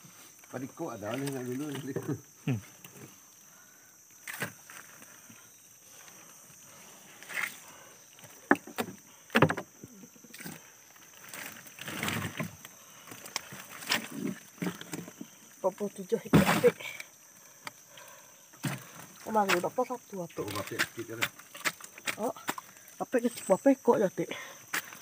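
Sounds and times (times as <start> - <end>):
clicks and knocks of prawns: 4.2 - 5.1, 8.2 - 15.4, 16.2 - 23.0.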